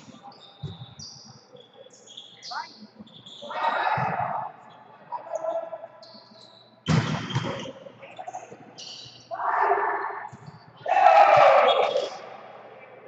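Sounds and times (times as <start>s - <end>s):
sneaker squeaks on court: 0.1s - 4.4s, 6.0s - 9.3s
player shouting: 10.8s - 12.2s.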